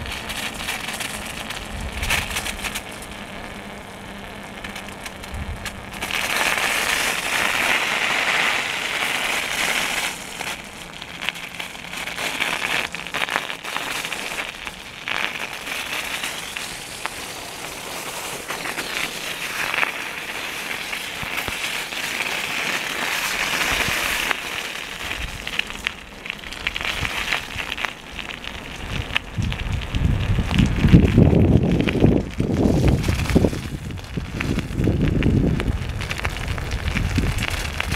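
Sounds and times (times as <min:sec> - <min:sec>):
icy snow and slush crunching: 0:00.0 - 0:37.9.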